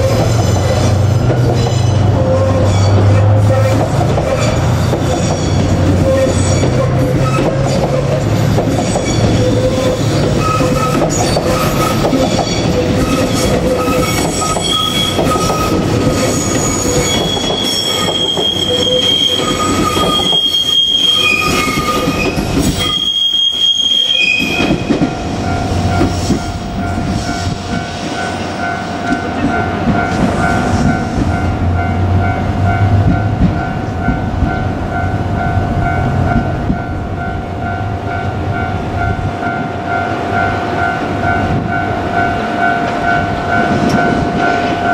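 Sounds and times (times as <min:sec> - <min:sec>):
train wheels squealing: 0:00.0 - 0:28.6
train coaches rumbling on rails: 0:00.0 - 0:44.9.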